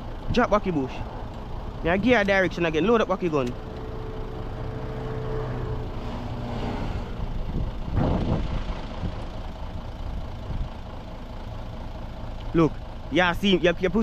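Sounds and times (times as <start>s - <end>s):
engine humming: 0.0s - 14.0s
steady tone: 2.6s - 8.3s.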